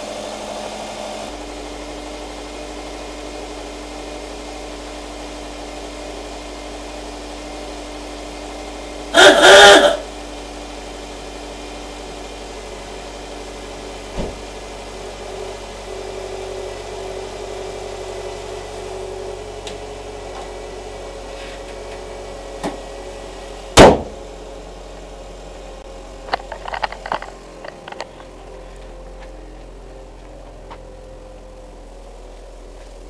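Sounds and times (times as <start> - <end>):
car engine idling: 0.0 - 33.0
car hood slammed shut: 14.1 - 14.4, 23.8 - 24.2.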